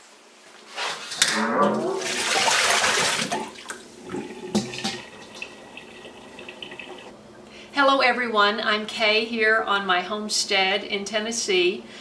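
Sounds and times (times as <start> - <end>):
water splashing in a metal bowl: 2.0 - 7.1.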